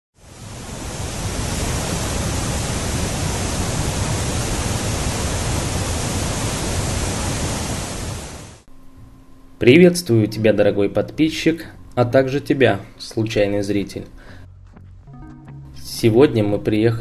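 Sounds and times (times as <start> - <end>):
waterfall roar: 0.2 - 8.7.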